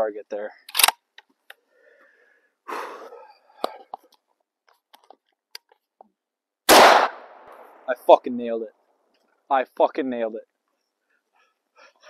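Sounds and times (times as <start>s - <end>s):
rifle shot: 6.7s - 7.9s.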